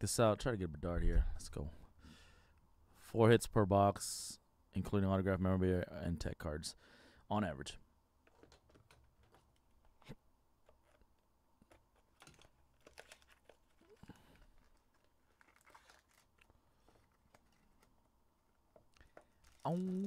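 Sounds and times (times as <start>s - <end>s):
box handling clicks and rustles: 10.6s - 18.0s
plastic wrap crinkling and tearing: 12.0s - 17.9s, 18.9s - 20.0s.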